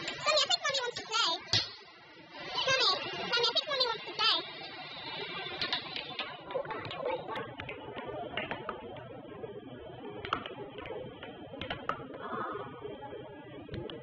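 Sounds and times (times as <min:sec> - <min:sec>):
air hockey puck and mallets clacking: 0:00.9 - 0:01.8, 0:10.2 - 0:12.2.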